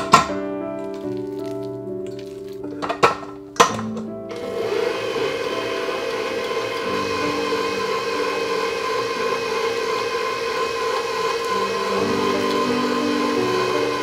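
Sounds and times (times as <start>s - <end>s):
stand mixer motor running: 4.3s - 14.0s.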